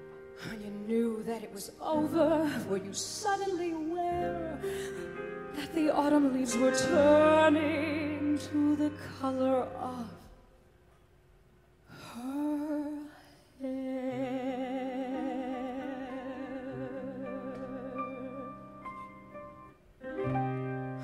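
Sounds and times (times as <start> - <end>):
woman singing: 0.4 - 10.4, 12.0 - 18.9
soft band accompaniment: 2.0 - 10.2, 16.8 - 21.0.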